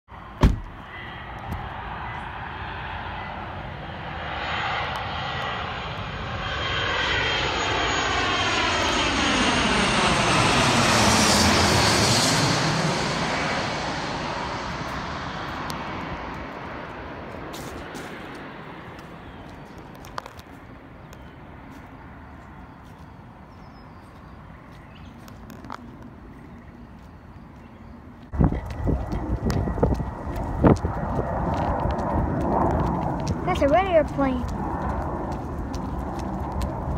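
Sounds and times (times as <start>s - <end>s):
jet passing low overhead: 0.1s - 36.9s.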